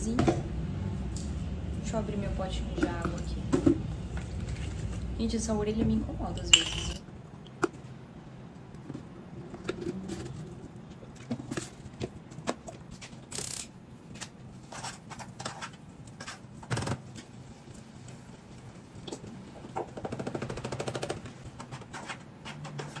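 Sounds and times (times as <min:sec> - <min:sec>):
utensils and pots knocking and clinking: 0:05.8 - 0:07.0.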